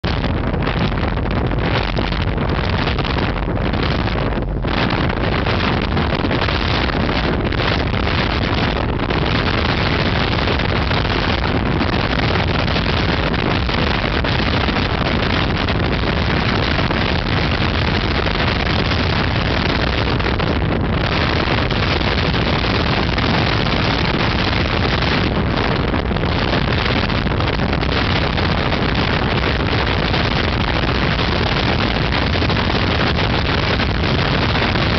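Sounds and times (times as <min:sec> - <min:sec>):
speedboat engine running: 0:00.0 - 0:34.9
wind rushing on microphone: 0:00.0 - 0:34.9.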